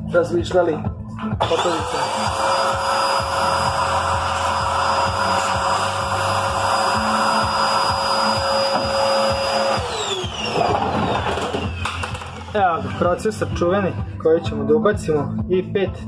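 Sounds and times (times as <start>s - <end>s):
vacuum cleaner whining: 1.4s - 13.5s.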